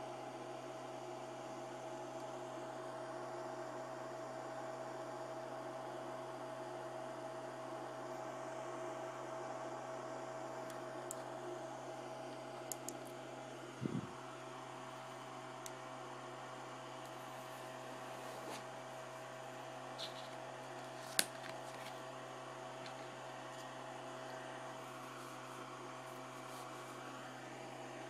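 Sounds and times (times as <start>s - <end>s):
electrical hum: 0.0s - 28.0s.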